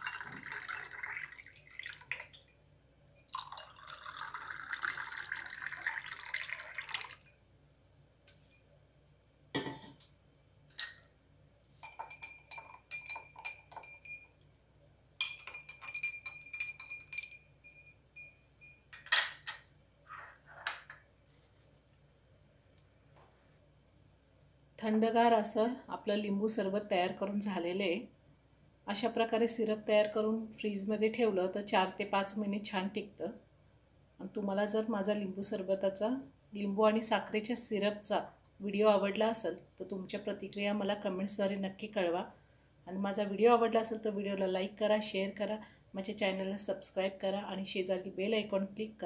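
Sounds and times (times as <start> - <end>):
water pouring into glasses: 0.0 - 2.5, 3.2 - 7.4
spoon and ice clinking glass: 11.8 - 14.4, 15.2 - 19.7.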